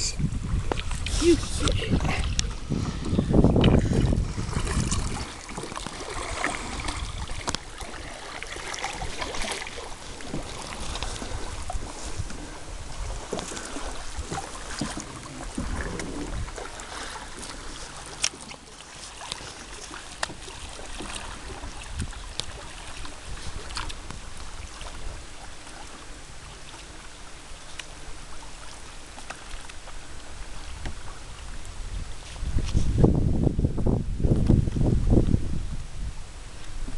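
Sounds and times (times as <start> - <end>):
water dripping and lapping: 0.0 - 33.0
kayak paddle dipping in water: 0.2 - 33.2, 36.4 - 36.9
small splashes: 0.7 - 12.4, 13.0 - 27.0.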